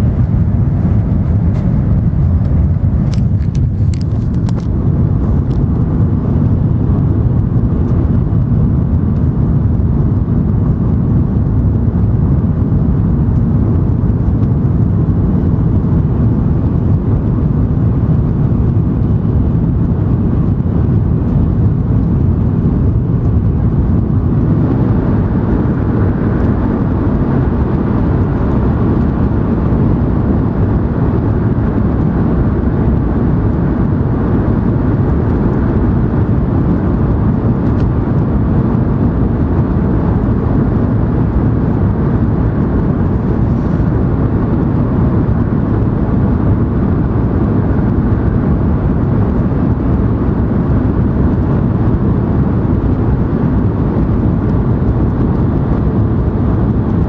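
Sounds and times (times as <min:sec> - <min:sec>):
train rumble inside cabin: 0:00.0 - 0:57.0.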